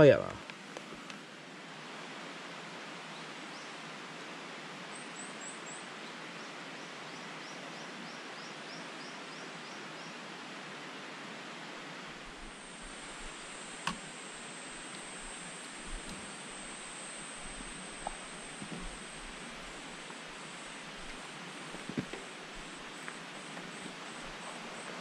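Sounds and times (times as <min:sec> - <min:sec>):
outdoor background hiss: 0:00.0 - 0:25.0
thin high whine: 0:12.1 - 0:25.0
sharp click: 0:13.8 - 0:14.1.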